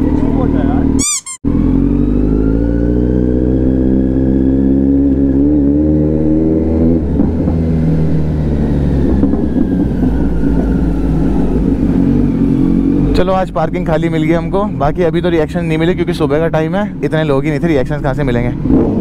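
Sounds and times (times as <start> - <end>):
motorcycle engine revving: 0.0 - 13.8, 17.9 - 19.0.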